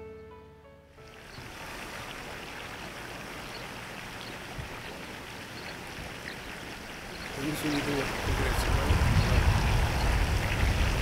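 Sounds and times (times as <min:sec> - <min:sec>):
outdoor background rush: 0:01.1 - 0:11.0.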